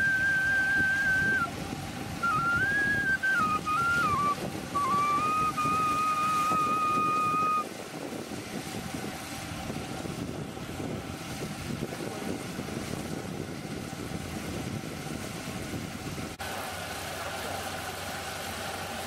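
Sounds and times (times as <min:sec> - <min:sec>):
whistle-like musical note: 0:00.0 - 0:01.5, 0:02.2 - 0:07.7
wind on microphone: 0:00.0 - 0:16.4
combine harvester running: 0:00.0 - 0:19.0.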